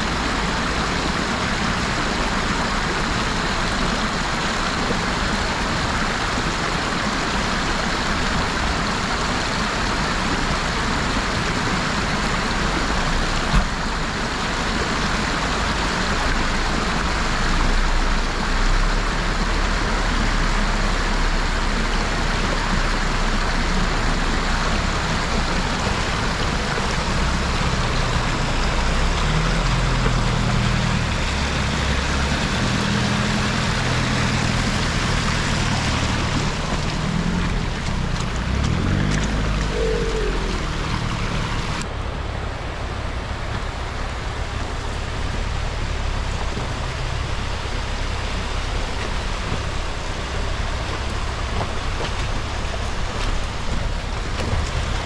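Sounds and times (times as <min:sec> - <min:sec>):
loud steady rushing noise: 0:00.0 - 0:55.0
off-road vehicle engine running: 0:00.0 - 0:55.0.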